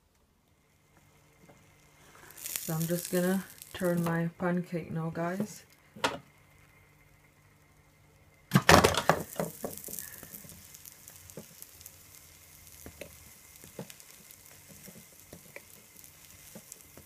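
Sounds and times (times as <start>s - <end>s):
pancake batter sizzling in pan: 0.5s - 17.0s
small pops: 8.5s - 17.0s.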